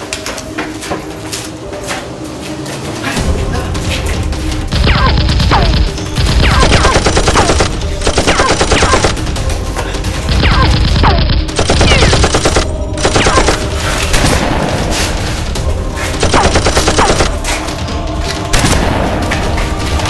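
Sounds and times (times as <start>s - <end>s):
machine-gun fire sound effects: 4.7s - 9.2s, 10.3s - 14.6s, 16.2s - 17.4s.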